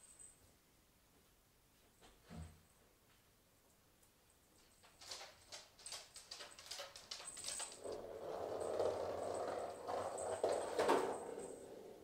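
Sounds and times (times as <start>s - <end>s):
ball rolling on hard floor: 7.3s - 12.0s.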